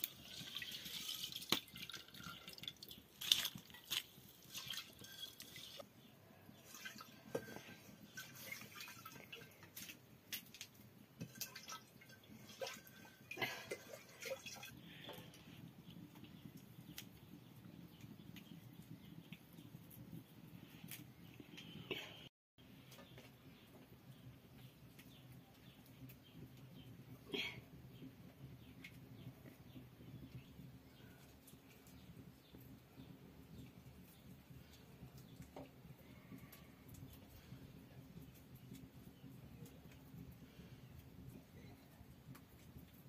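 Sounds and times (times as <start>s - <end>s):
metal pots and lids clinking: 0.0s - 5.8s
water sloshing and dripping: 0.0s - 5.9s, 6.5s - 15.3s.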